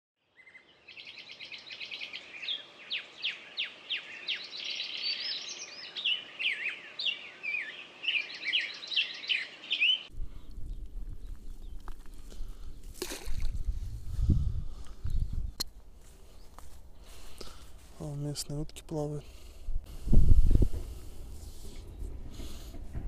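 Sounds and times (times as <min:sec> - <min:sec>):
songbirds chirping and whistling: 0:00.2 - 0:13.0, 0:14.1 - 0:17.9.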